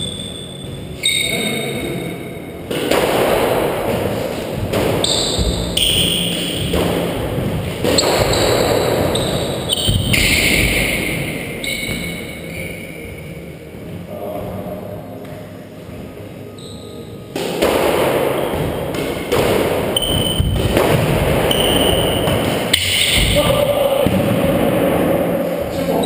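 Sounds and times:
squash ball hit by rackets: 0:02.7 - 0:12.2, 0:17.3 - 0:25.0.

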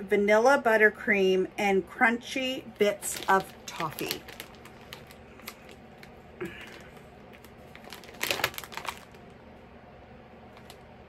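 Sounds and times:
plastic bag crinkling: 0:02.6 - 0:09.4, 0:10.5 - 0:10.8.

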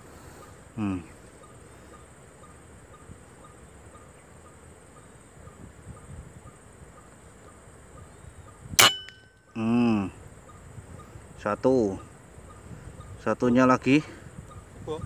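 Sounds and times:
insects droning: 0:00.0 - 0:15.0
air rifle shot: 0:08.8 - 0:09.2
short metallic ring: 0:08.8 - 0:09.4.

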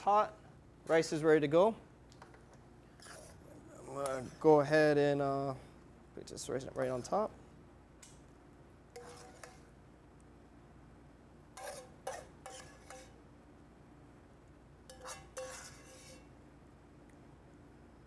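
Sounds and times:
utensil scraping a dish: 0:03.0 - 0:03.4, 0:09.0 - 0:09.7, 0:11.6 - 0:13.2, 0:14.9 - 0:16.3.

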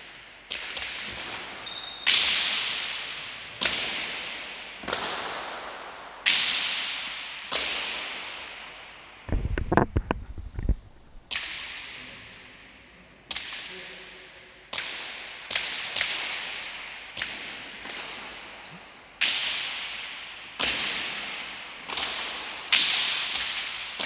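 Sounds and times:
balls smacking off walls: 0:03.6 - 0:08.2, 0:09.3 - 0:12.0, 0:20.6 - 0:24.0.

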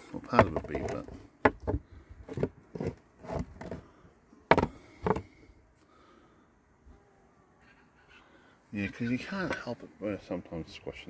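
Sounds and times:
plastic tray knocks and clacks: 0:00.3 - 0:02.5, 0:04.5 - 0:05.2.

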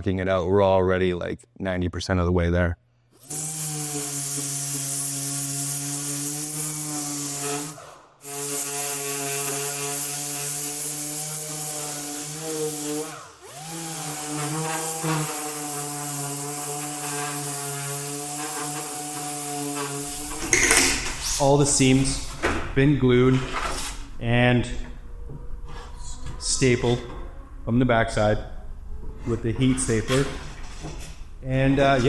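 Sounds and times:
orbital sander running: 0:03.2 - 0:20.4.

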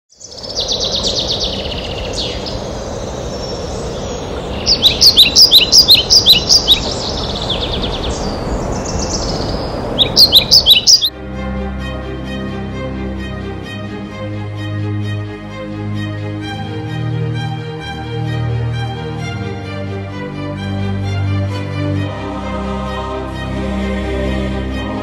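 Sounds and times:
songbirds chirping: 0:00.1 - 0:11.1
instrumental music with held notes: 0:11.1 - 0:25.0.

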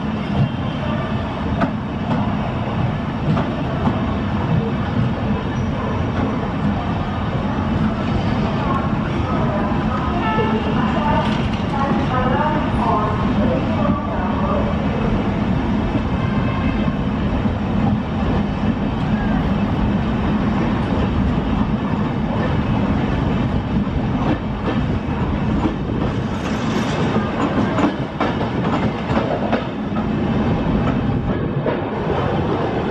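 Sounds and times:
train wheels rumbling on rails: 0:00.0 - 0:32.9
clickety-clack over rail joints: 0:01.5 - 0:02.3, 0:03.2 - 0:06.8, 0:09.9 - 0:12.1, 0:23.3 - 0:32.0.

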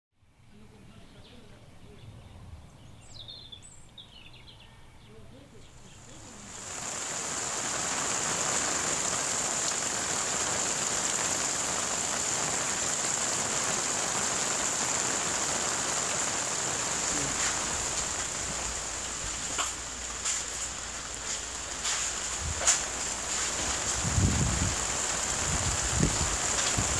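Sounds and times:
steady rain falling: 0:06.0 - 0:26.9.

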